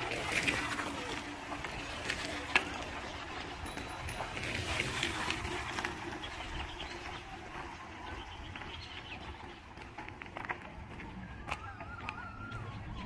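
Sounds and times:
steady noisy background: 0.0 - 13.0
birds calling: 1.6 - 10.3.

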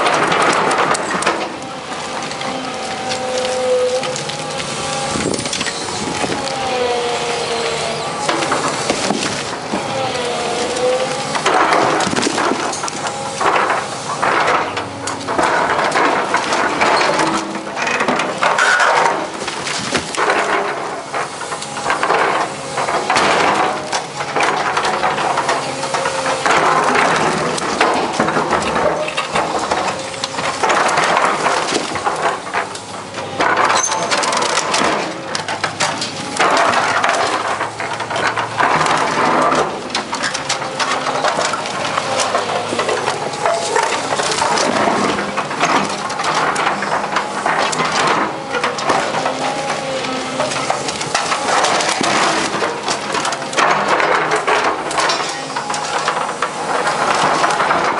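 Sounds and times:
concrete chunks clattering down: 0.0 - 57.9
concrete cracking and grinding: 0.0 - 57.9
diesel engine running: 0.0 - 57.9.

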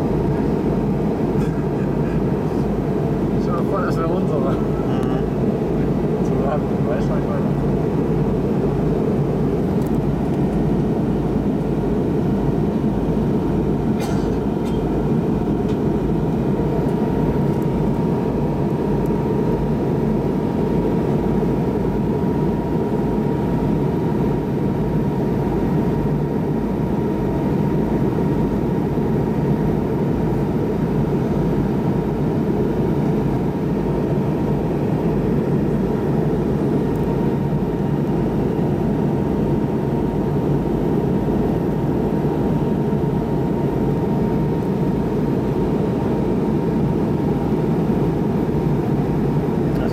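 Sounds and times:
faint steady whine: 0.0 - 49.9.

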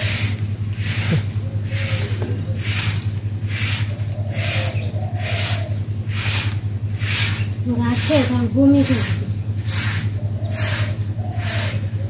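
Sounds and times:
broom sweeping ground: 0.0 - 12.0.

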